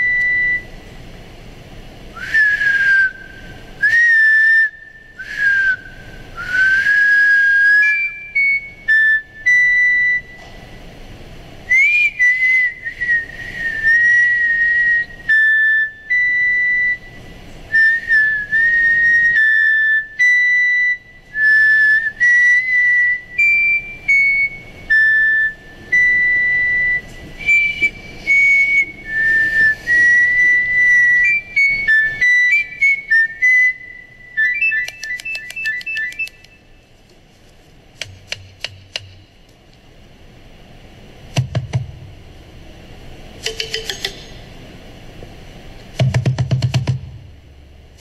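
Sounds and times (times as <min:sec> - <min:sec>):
whistled tune over speakers: 0:00.0 - 0:00.9, 0:02.1 - 0:10.8, 0:11.7 - 0:36.9.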